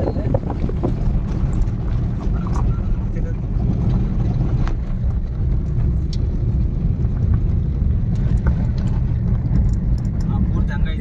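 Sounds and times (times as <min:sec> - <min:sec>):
car driving on gravel road: 0:00.0 - 0:11.0
small clicks and rattles: 0:07.1 - 0:10.4.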